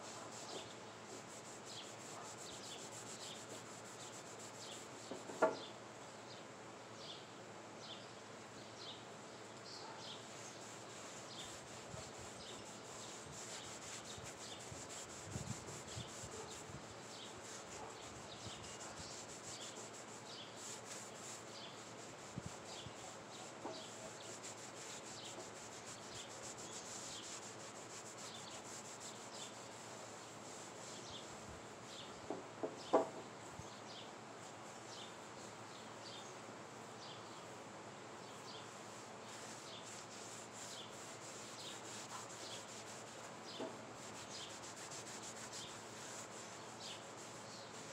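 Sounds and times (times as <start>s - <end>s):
cloth wiping wooden board: 0.0s - 5.5s, 10.3s - 31.4s, 38.7s - 47.9s.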